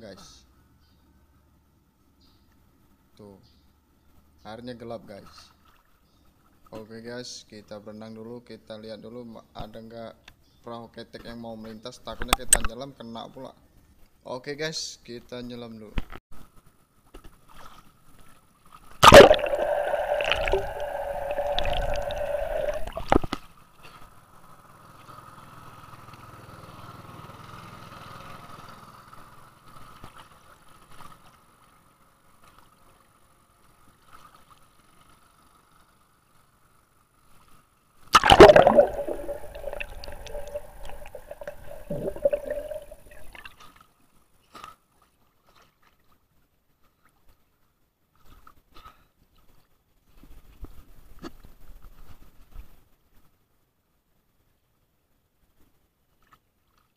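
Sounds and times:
water gurgling and splashing: 0:19.0 - 0:23.3, 0:38.2 - 0:43.5.

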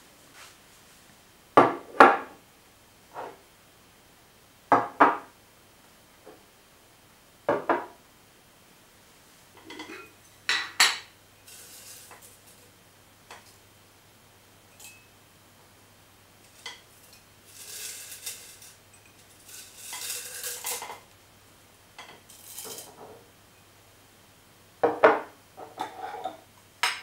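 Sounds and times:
soft rustle: 0:00.2 - 0:01.2
glass jars clunking on table: 0:09.6 - 0:11.1.

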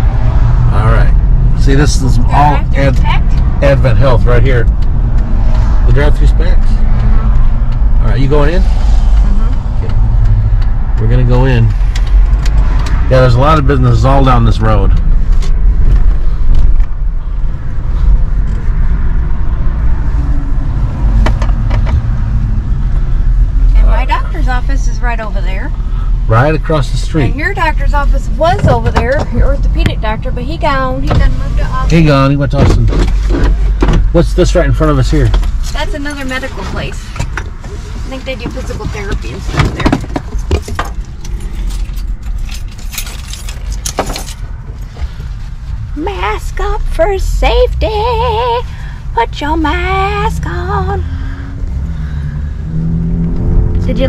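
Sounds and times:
car engine and tyres rumbling: 0:00.0 - 0:54.0.

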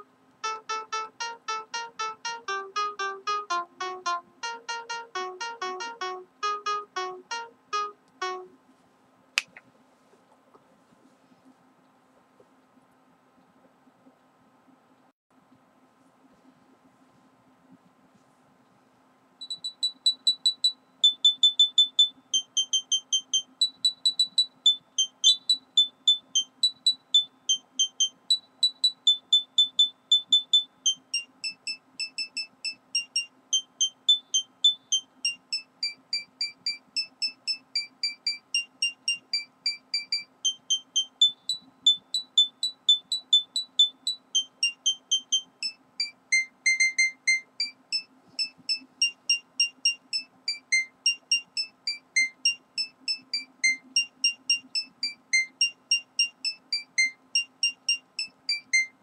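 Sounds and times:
high beeping tune: 0:00.0 - 0:08.6, 0:28.8 - 0:54.9
faint steady hum: 0:00.0 - 0:59.0.

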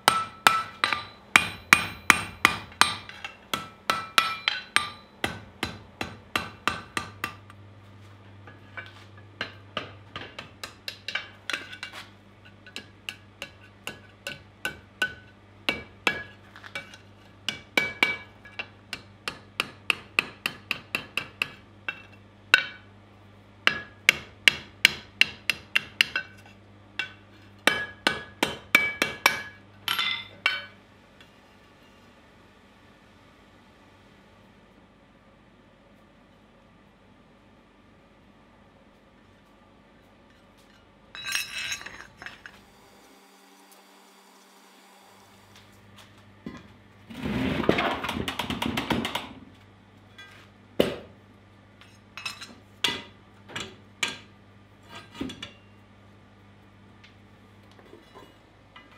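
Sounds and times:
hammer ringing on anvil: 0:00.0 - 0:07.4.

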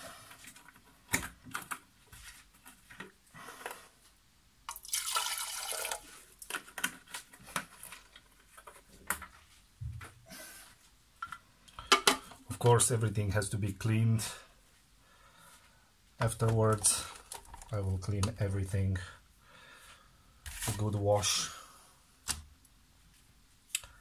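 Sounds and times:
water pouring into plastic tank: 0:04.7 - 0:06.5.

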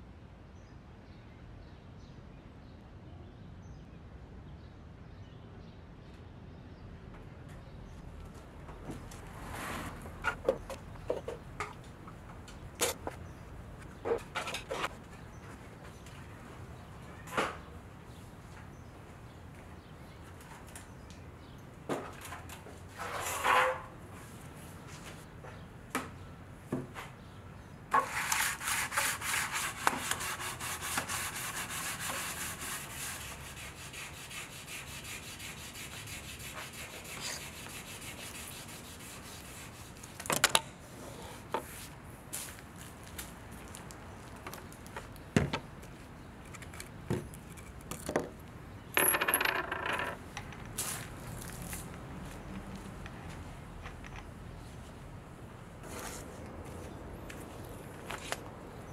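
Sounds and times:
plastic parts rubbing and scraping: 0:09.4 - 0:11.8, 0:12.8 - 0:15.0.

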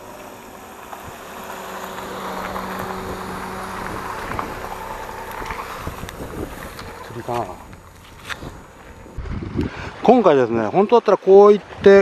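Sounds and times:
car engine running: 0:00.0 - 0:09.6
wind on microphone: 0:00.0 - 0:10.2
bike tyres on gravel: 0:00.0 - 0:10.8.

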